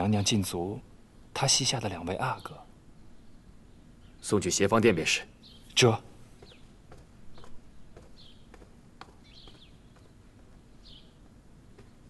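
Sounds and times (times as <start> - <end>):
soft taps: 6.4 - 10.6, 11.7 - 12.0
high bird chirps: 7.3 - 10.2.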